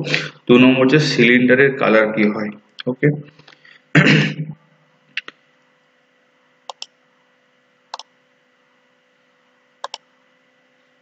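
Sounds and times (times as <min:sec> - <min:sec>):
faint electrical hum: 0:00.0 - 0:11.0
computer mouse clicking: 0:06.7 - 0:07.0, 0:07.9 - 0:08.1, 0:09.8 - 0:10.0.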